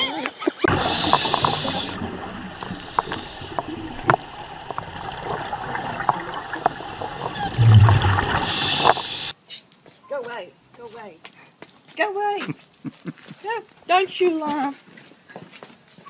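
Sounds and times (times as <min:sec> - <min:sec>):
muffled underwater hiss: 0:00.0 - 0:09.4
exhaled bubbles rushing: 0:00.7 - 0:09.3.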